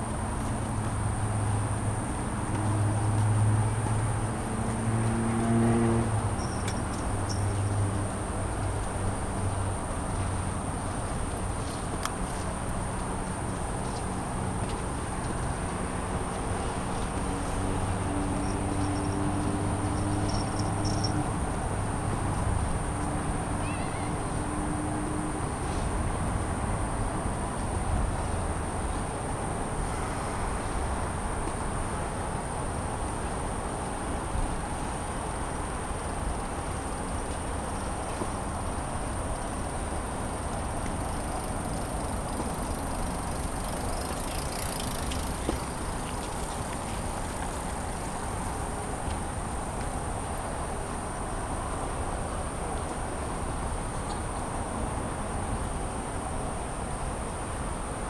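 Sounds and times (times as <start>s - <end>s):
distant road traffic rumble: 0.0s - 58.0s
insect chorus: 0.3s - 58.0s
constant high-pitched tone: 6.3s - 7.7s, 18.2s - 22.8s.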